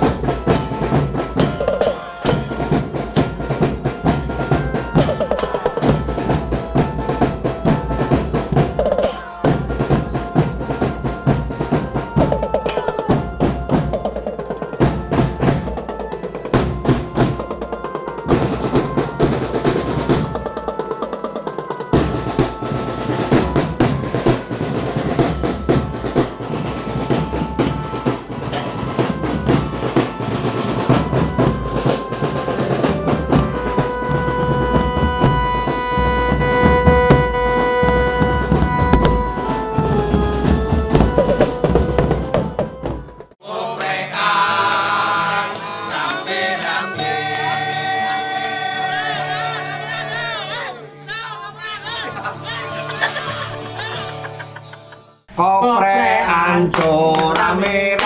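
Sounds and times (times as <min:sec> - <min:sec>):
held melodic notes: 0:00.0 - 0:43.4
snare drum rolls: 0:00.0 - 0:43.4
tenor and bass drums: 0:00.0 - 0:43.4.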